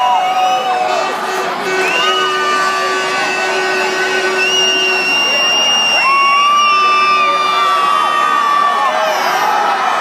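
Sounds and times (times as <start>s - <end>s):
high-pitched whoops and shouts: 0.0s - 1.0s, 4.4s - 10.0s
crowd cheering: 0.0s - 10.0s.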